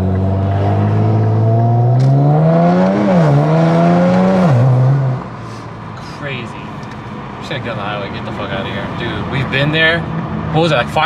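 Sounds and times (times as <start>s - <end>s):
car engine accelerating: 0.0s - 5.4s.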